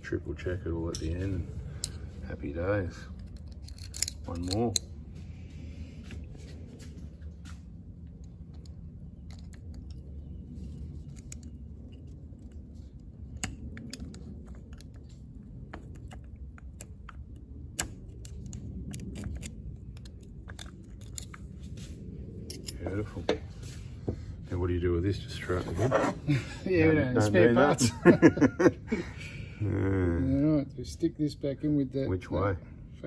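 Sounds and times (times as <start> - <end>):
low steady hum: 0.0 - 33.0
small metal clicks and ticks: 3.2 - 4.9, 11.1 - 21.6.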